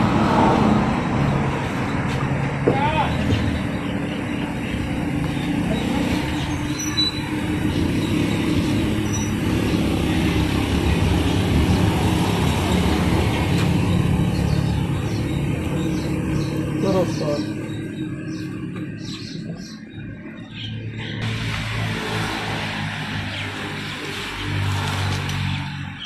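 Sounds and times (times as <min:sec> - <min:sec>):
stationary diesel engine chugging: 0:13.8 - 0:19.9.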